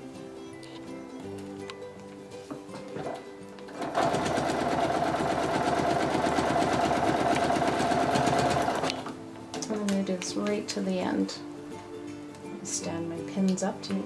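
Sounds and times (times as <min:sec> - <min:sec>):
sewing machine stitching: 0:03.0 - 0:09.1.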